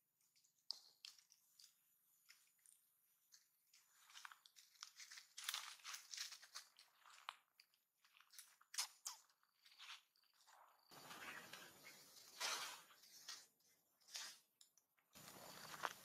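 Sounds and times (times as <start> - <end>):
dry leaves crackling and rustling: 4.1 - 6.9.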